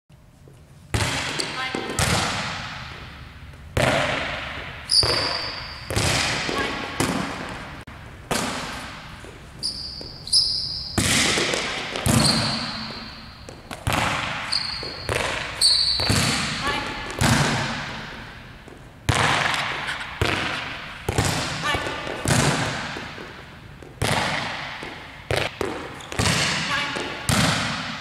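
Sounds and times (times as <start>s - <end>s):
volleyball smacks echoing: 0.9s - 3.2s, 3.8s - 9.2s, 10.9s - 28.0s
shoes squeaking on court: 4.5s - 7.7s, 8.6s - 17.2s, 24.7s - 27.3s.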